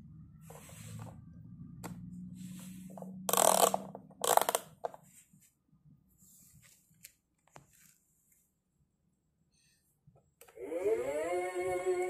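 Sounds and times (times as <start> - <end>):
soft rustles: 4.9 - 8.6.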